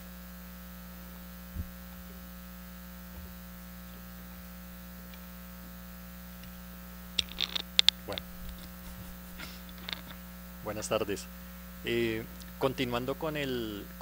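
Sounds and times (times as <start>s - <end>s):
electrical mains hum: 0.0s - 14.0s
faint low thump: 1.5s - 2.0s
sharp clicks and knocks: 7.2s - 10.2s.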